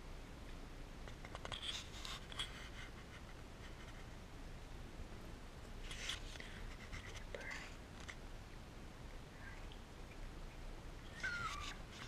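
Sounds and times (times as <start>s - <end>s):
scratchy rustling and clicking: 1.1s - 4.2s, 5.8s - 8.2s
short high squeaks: 11.1s - 12.0s.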